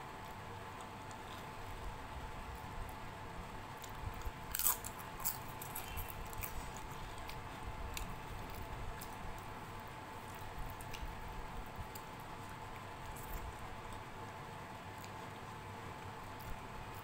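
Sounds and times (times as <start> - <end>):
chewing with small crunches: 0.2 - 3.0, 3.6 - 17.0
fried papad crunching: 3.6 - 15.6.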